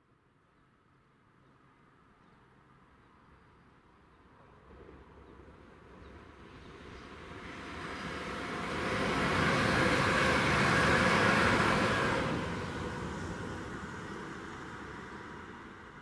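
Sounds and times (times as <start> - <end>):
electric train passing at speed: 4.2 - 16.0.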